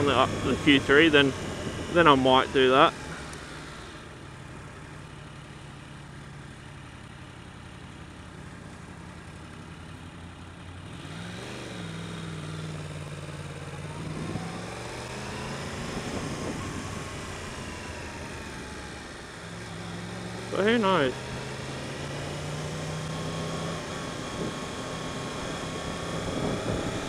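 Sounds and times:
motorcycle engine revving: 0:00.0 - 0:06.2, 0:10.6 - 0:27.0
wind noise: 0:15.8 - 0:17.3, 0:26.0 - 0:27.0.

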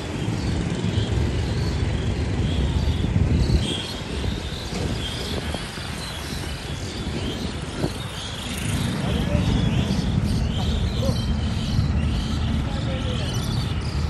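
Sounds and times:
rumble of passing vehicles: 0:00.0 - 0:14.0.

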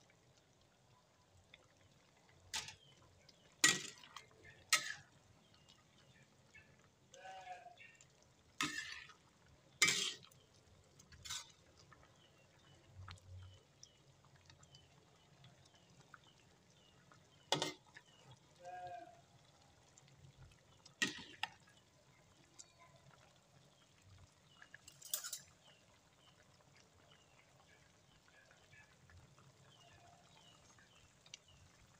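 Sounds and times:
stew simmering: 0:00.0 - 0:31.9
metal spoon clinking against pan: 0:03.6 - 0:05.0, 0:09.8 - 0:10.3, 0:24.9 - 0:25.5.

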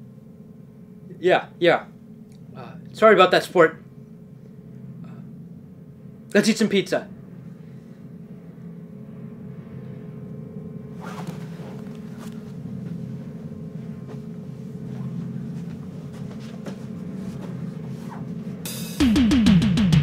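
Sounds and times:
low steady drone: 0:00.0 - 0:19.6
rustling: 0:10.9 - 0:18.6
shuffling footsteps: 0:11.0 - 0:18.7.

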